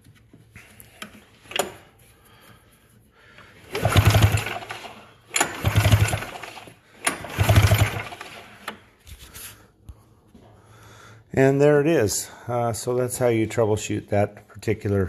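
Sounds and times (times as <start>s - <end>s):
snowmobile engine cranking: 3.6s - 8.8s.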